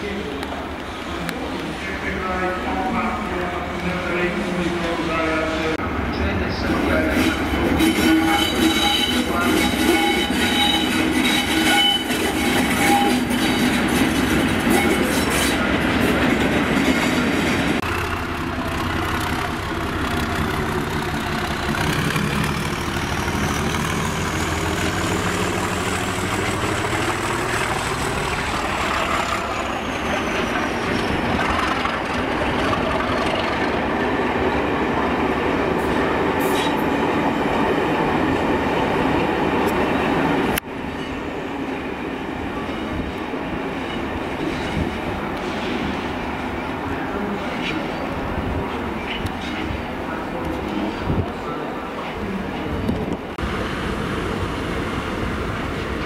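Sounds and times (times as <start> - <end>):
high wheel squeal: 7.2 - 13.8, 23.2 - 31.7
diesel locomotive engines running: 7.8 - 36.7, 52.8 - 56.0.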